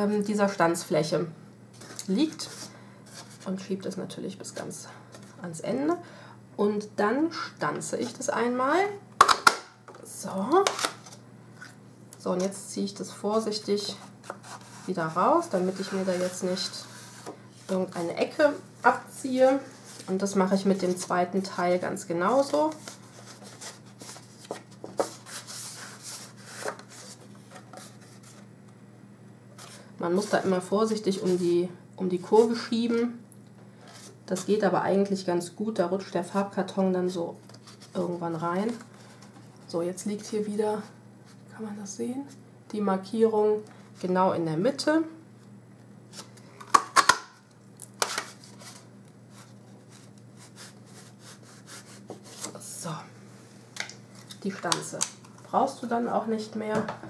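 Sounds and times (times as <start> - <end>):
papery scrapes of cardstock: 13.9 - 18.0, 22.6 - 28.4.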